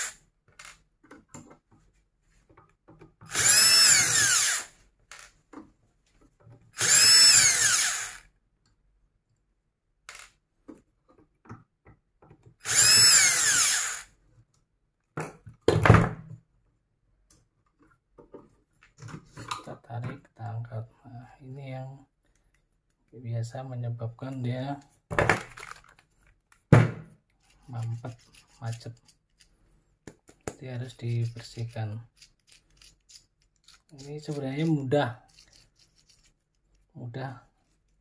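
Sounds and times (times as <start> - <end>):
cordless drill whine: 0.0 - 0.7, 3.3 - 5.2, 6.8 - 8.3, 12.6 - 14.1.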